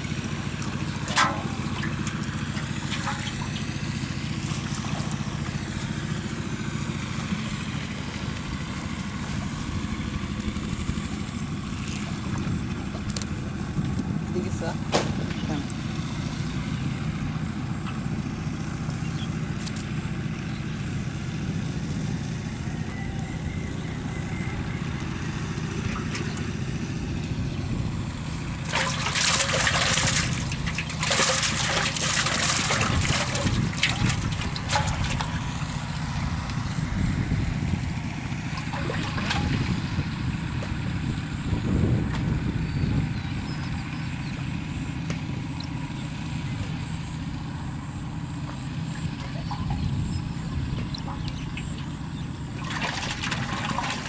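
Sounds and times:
water splashing in metal pot: 0:01.0 - 0:05.6, 0:28.6 - 0:35.7, 0:38.6 - 0:39.8, 0:52.6 - 0:54.0
low rumble: 0:32.8 - 0:43.8.

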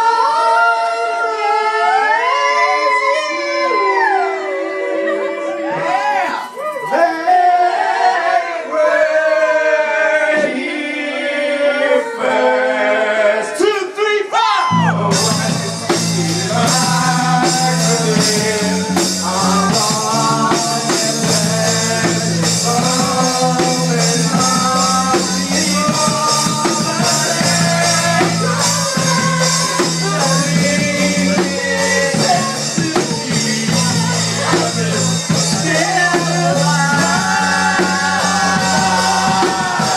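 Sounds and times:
voices singing: 0:00.0 - 0:39.9
bass line: 0:14.7 - 0:39.9
drums with cymbals: 0:14.8 - 0:39.9.

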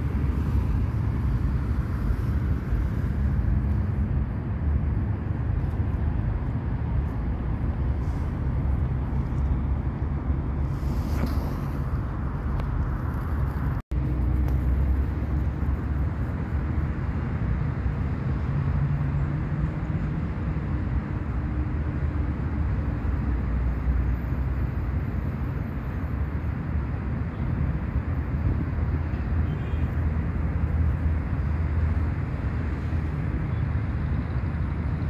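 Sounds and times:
low outdoor rumble: 0:00.0 - 0:26.4.

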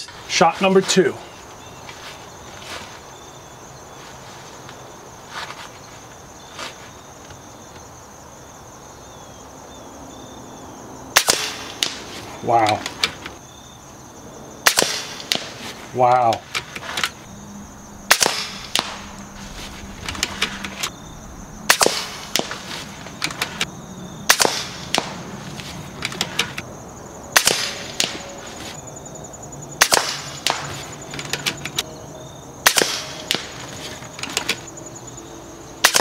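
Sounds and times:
air rifle cracks: 0:18.0 - 0:19.4.

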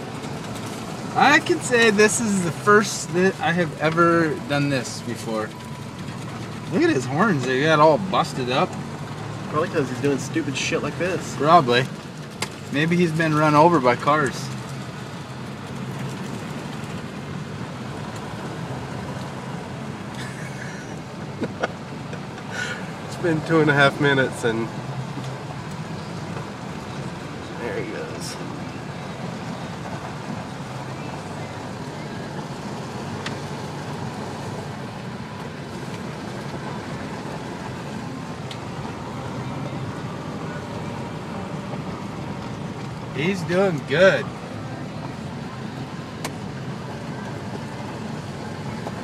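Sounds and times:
truck engine and tyre drone: 0:00.0 - 0:49.0
road hiss: 0:18.2 - 0:24.7.

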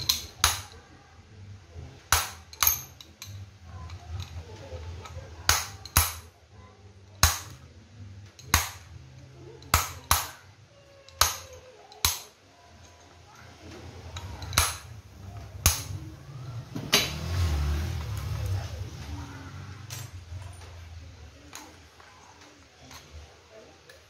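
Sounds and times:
hammer striking steel rod: 0:11.2 - 0:12.3, 0:15.6 - 0:16.0.

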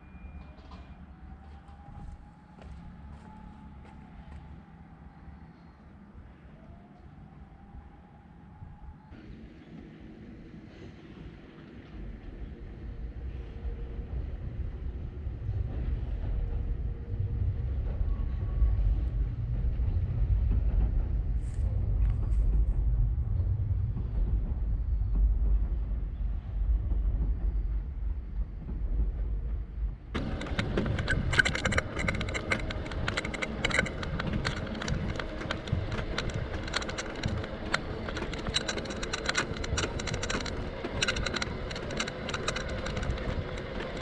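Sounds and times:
wind buffeting microphone: 0:07.6 - 0:44.0
bicycle rattling over rough path: 0:30.1 - 0:44.0.

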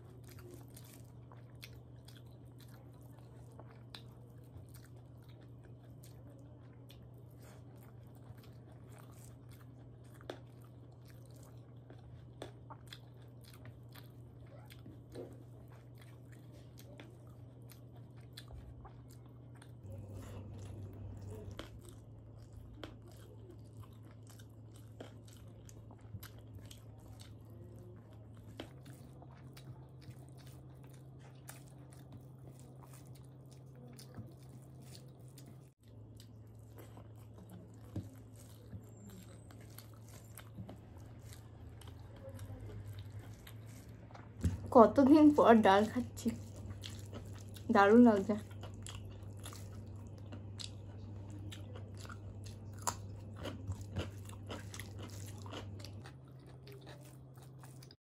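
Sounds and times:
person chewing: 0:00.0 - 0:58.0.

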